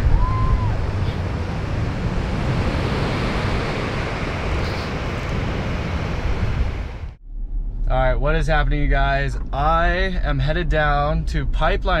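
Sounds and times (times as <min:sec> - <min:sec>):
ocean surf rushing: 0:00.0 - 0:07.2
wind buffeting microphone: 0:00.0 - 0:12.0.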